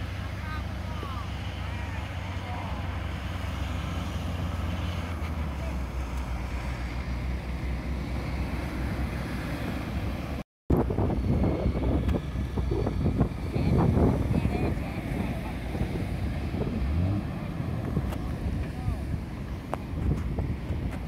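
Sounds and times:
diesel engine running: 0:00.0 - 0:21.0
wind buffeting microphone: 0:08.2 - 0:21.0.

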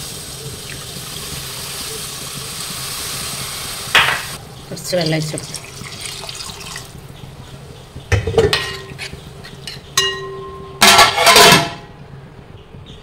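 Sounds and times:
metal pots and utensils clinking: 0:04.0 - 0:04.4, 0:08.1 - 0:11.9
ringing metal clang: 0:09.7 - 0:11.9.

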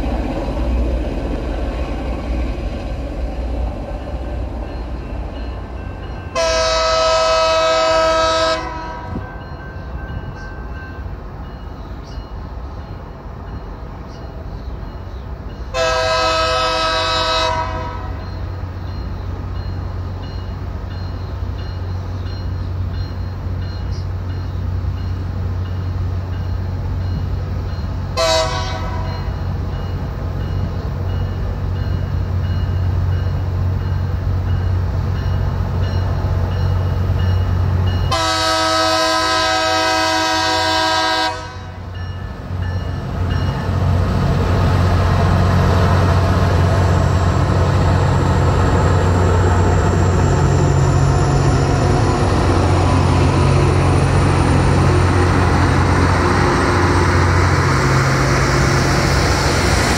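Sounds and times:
train rumbling: 0:00.0 - 0:59.9
train air horn blasts: 0:06.3 - 0:09.2, 0:15.7 - 0:18.2, 0:28.2 - 0:29.2, 0:38.1 - 0:41.8.

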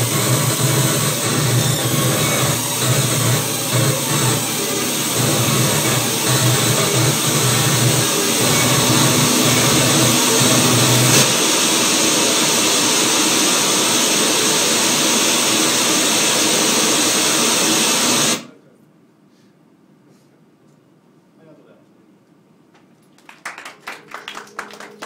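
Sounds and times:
low electronic drone: 0:00.0 - 0:15.8
harsh electronic noise: 0:00.0 - 0:18.5.

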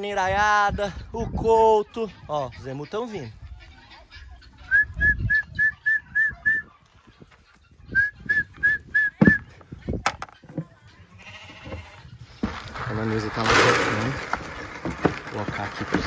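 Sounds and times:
person whistling short notes: 0:04.7 - 0:06.7, 0:07.9 - 0:09.5.

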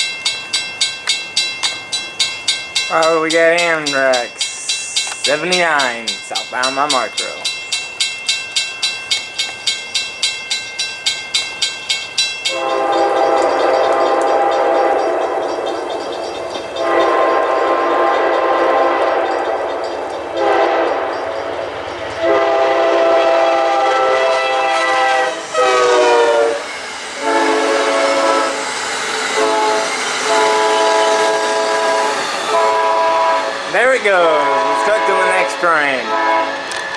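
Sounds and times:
passenger cars rolling by: 0:00.0 - 0:25.0
crossing bell dinging: 0:00.0 - 0:36.9
locomotive air horn blasts: 0:12.5 - 0:15.4, 0:16.8 - 0:19.4, 0:20.4 - 0:21.1, 0:22.2 - 0:28.6, 0:29.4 - 0:36.8.

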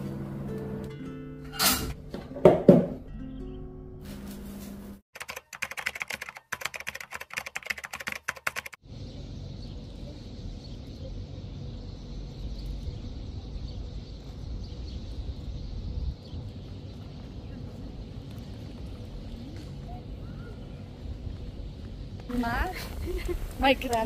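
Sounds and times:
outdoor rumble and hiss: 0:08.8 - 0:24.0.

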